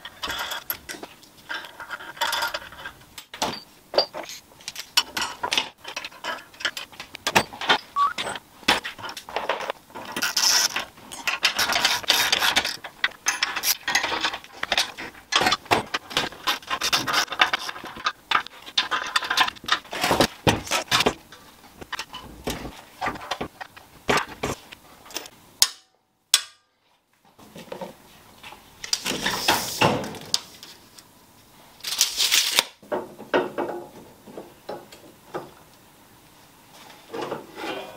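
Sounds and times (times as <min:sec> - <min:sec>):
metal tools clinking and scraping: 0:00.0 - 0:25.3.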